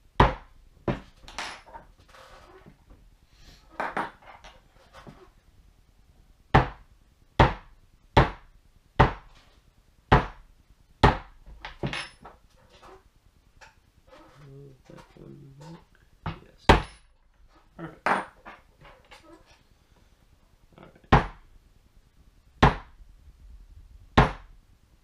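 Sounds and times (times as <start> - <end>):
mallet striking leather stamp: 6.5 - 6.8, 7.4 - 9.3, 10.1 - 10.4, 11.0 - 11.4, 22.6 - 23.0, 24.2 - 24.5.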